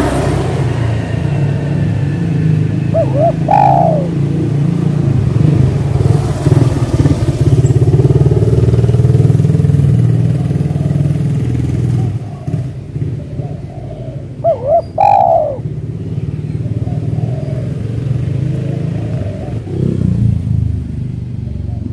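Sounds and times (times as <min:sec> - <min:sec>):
vehicle engine running: 0:00.0 - 0:17.6
dove cooing: 0:02.8 - 0:04.6, 0:11.9 - 0:15.8, 0:16.7 - 0:19.7, 0:21.6 - 0:21.9.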